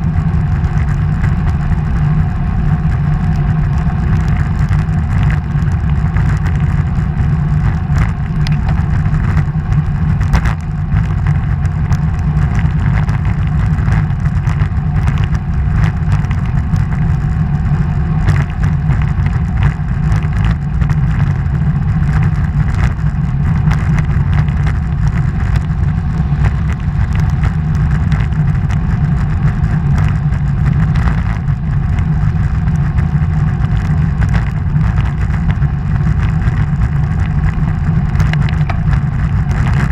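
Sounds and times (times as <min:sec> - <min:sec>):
vehicle rumble in a tunnel: 0:00.0 - 0:39.9.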